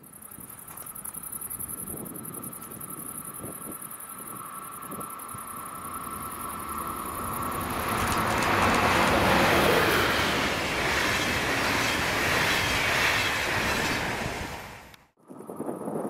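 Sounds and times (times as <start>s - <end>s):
train wheels on rails: 0.1s - 15.0s.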